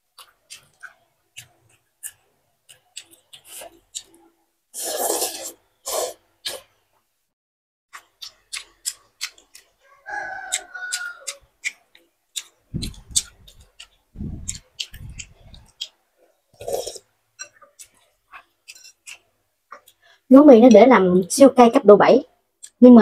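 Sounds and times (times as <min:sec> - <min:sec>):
wet chewing and lip smacks: 0:00.1 - 0:04.2, 0:07.9 - 0:16.0, 0:16.6 - 0:20.0
slurping noodles: 0:03.2 - 0:06.7, 0:16.5 - 0:19.0
rooster crowing: 0:09.8 - 0:11.4.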